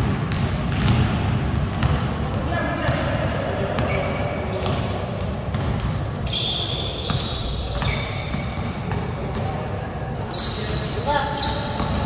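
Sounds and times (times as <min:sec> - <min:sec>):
sneakers squeaking on court: 0:00.0 - 0:02.2, 0:02.9 - 0:12.0
basketball dribbling on court: 0:00.0 - 0:06.0.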